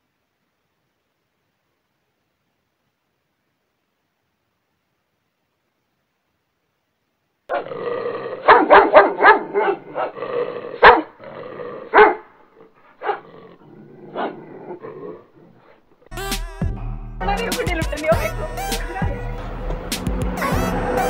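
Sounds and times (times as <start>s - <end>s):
large dog barking: 7.5s - 15.7s
music: 16.1s - 21.0s.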